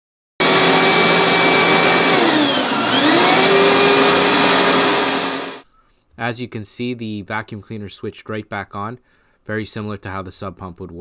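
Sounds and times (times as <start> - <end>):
vacuum cleaner motor whining: 0.4 - 5.6.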